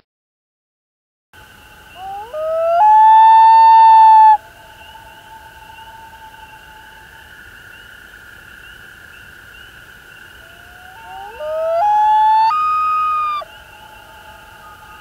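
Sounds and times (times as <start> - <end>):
faint high drone: 1.4 - 15.0
loon wailing: 2.0 - 4.4, 10.4 - 13.5.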